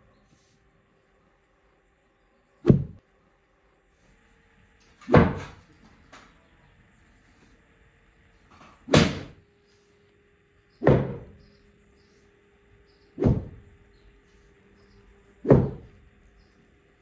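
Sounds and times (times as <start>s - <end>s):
stick whacking wool: 2.6s - 3.0s, 8.9s - 9.4s, 13.2s - 13.6s, 15.4s - 16.0s.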